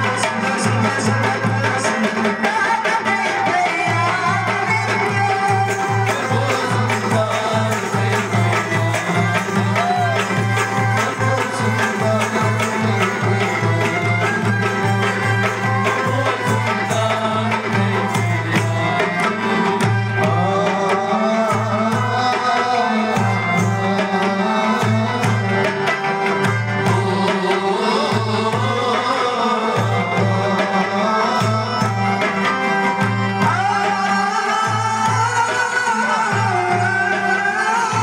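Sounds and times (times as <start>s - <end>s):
hand drum beating: 0.0s - 22.6s
woman singing into a microphone: 0.9s - 8.1s.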